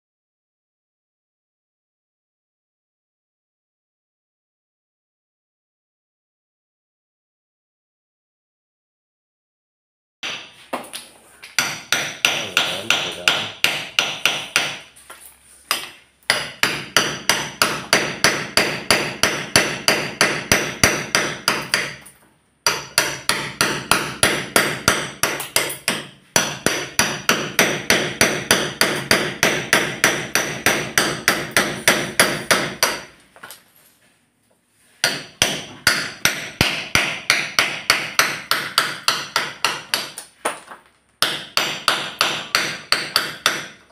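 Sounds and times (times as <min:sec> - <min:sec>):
hammer striking chisel: 0:10.2 - 0:15.0, 0:15.7 - 0:33.6, 0:35.0 - 0:43.9.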